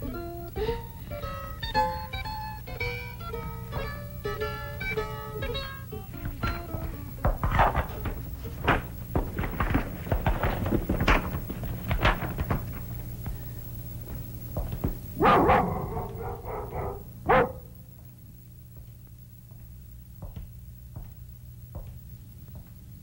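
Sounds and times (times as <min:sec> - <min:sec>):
dog barking: 0:15.2 - 0:17.8.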